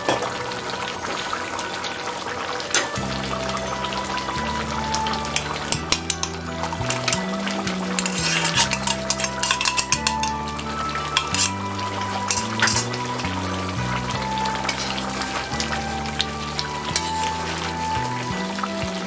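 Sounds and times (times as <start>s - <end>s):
background music with bass: 0.0s - 19.0s
curry bubbling and sizzling: 0.0s - 19.0s
spatula stirring in a pan: 5.3s - 13.4s, 16.9s - 17.8s.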